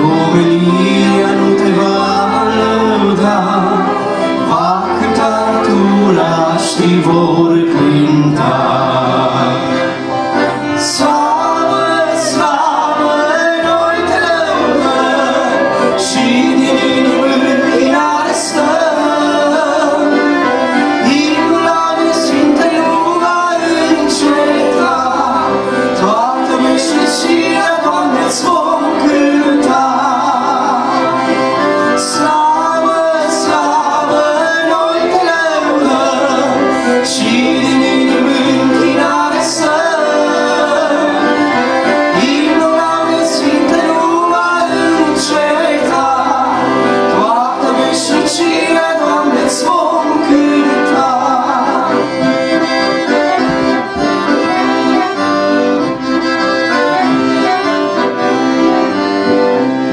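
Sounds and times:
person singing: 0.0 - 55.3
accordion: 0.0 - 59.9
live band playing: 0.0 - 59.9.

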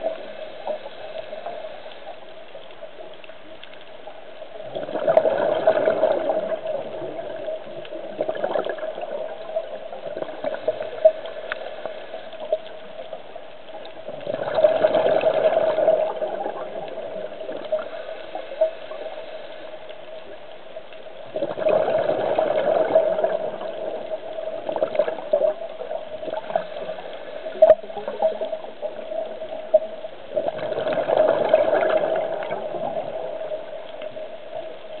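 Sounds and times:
faint clicks: 0.0 - 21.8, 22.5 - 35.0
diver's exhaled bubbles: 4.6 - 11.4, 14.1 - 18.1, 21.3 - 29.0, 30.3 - 33.8.

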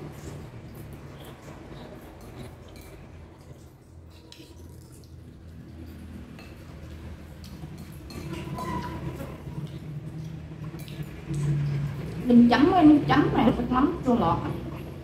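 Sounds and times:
chewing: 0.0 - 12.2
chopsticks clicking against dishes: 0.8 - 8.8, 9.6 - 11.6.

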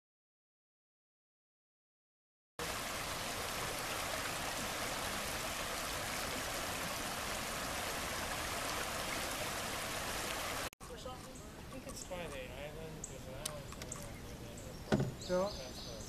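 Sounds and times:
river water rushing: 2.6 - 10.7.

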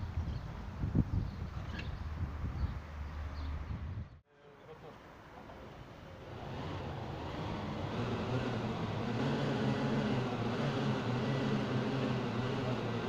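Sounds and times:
car engine under throttle: 6.2 - 13.0
wheels turning on rollers: 6.2 - 13.0.

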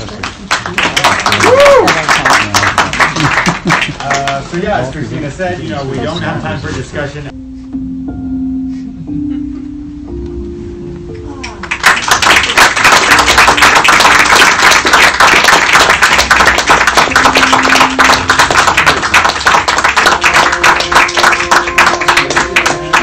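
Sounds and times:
audience applauding: 0.0 - 4.5, 11.6 - 23.0
soft sustained credits music: 7.3 - 12.0, 17.0 - 23.0.

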